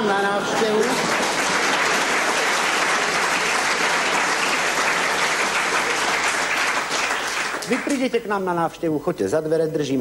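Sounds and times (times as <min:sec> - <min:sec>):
audience applauding: 0:00.0 - 0:08.3.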